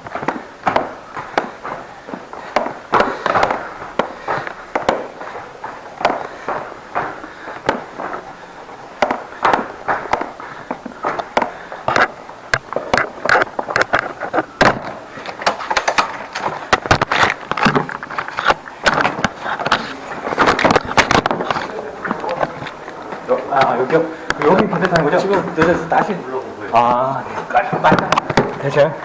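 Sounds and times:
tool cart knocking on stairs: 0.0 - 8.4
footsteps: 0.0 - 29.0.

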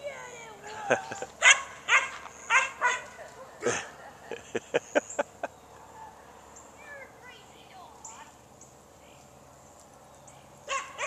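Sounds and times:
dog yipping: 1.4 - 3.2, 10.7 - 11.0
dog barking: 1.4 - 3.9, 10.7 - 11.0.

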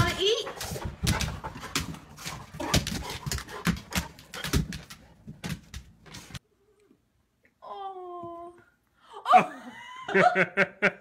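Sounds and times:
dog claws clicking on tile: 0.5 - 6.4.

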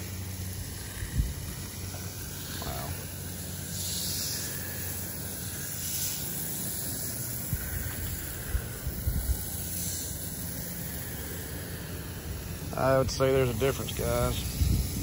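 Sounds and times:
low steady hum: 0.0 - 15.0
spray hissing on concrete: 0.0 - 15.0.

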